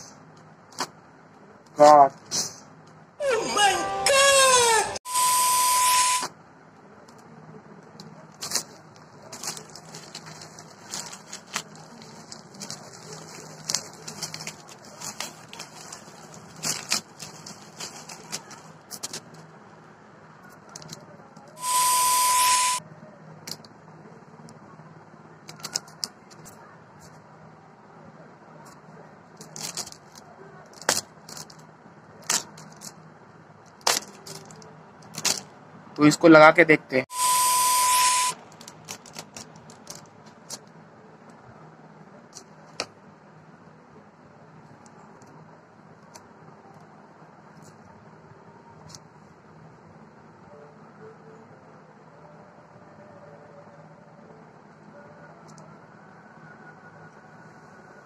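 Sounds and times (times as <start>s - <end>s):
loud static hiss: 4.9s - 6.3s, 21.6s - 22.8s, 37.1s - 38.5s
steady beep: 5.1s - 6.3s, 21.6s - 22.8s, 37.1s - 38.4s
plastic packaging rustle: 8.3s - 19.4s, 29.4s - 31.6s, 33.7s - 35.5s, 38.5s - 40.7s
bubble wrap crinkling and tearing: 8.4s - 19.2s, 38.5s - 40.6s.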